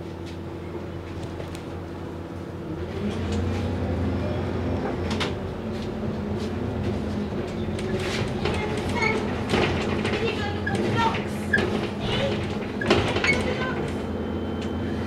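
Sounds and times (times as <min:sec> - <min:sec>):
bus engine accelerating: 0:00.0 - 0:15.0
interior clicks and rattles: 0:07.4 - 0:14.0.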